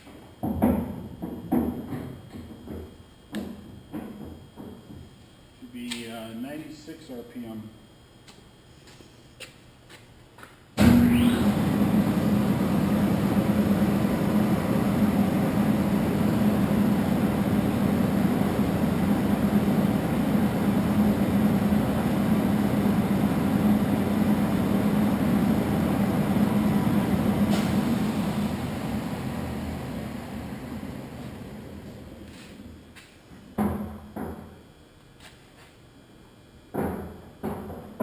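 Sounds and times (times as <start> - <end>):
lathe running with loud drone: 10.8 - 32.5.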